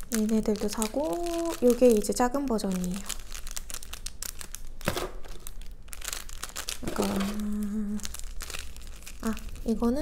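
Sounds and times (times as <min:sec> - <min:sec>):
plastic bags crinkling: 0:00.0 - 0:10.0
person humming: 0:06.9 - 0:08.0.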